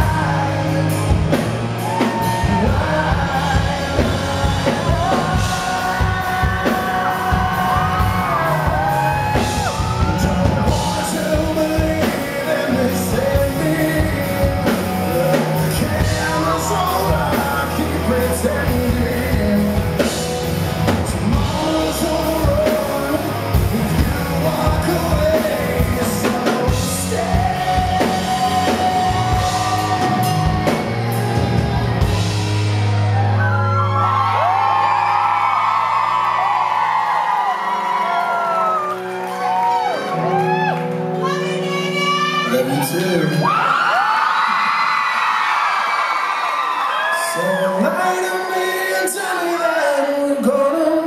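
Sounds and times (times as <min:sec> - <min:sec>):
man singing: 0:00.0 - 0:32.3, 0:41.4 - 0:43.8, 0:47.2 - 0:51.0
live rock band playing: 0:00.0 - 0:44.5
audience cheering: 0:01.3 - 0:13.4, 0:24.4 - 0:49.9.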